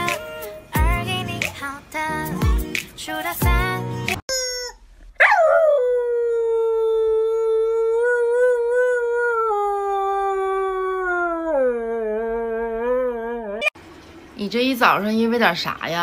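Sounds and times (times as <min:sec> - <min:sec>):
husky howling: 0:05.2 - 0:13.7.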